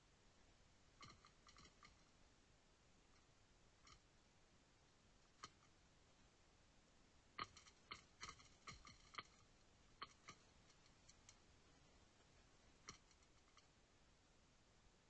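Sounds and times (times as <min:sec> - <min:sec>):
sharp clicks and ticks: 0:01.0 - 0:02.1, 0:05.2 - 0:05.7, 0:07.4 - 0:11.4, 0:12.8 - 0:13.7.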